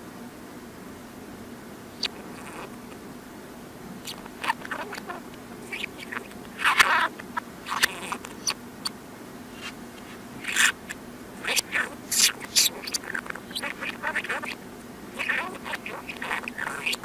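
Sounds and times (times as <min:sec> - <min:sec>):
budgerigar chattering played backwards: 0:02.0 - 0:02.7, 0:04.0 - 0:08.6, 0:10.4 - 0:17.0.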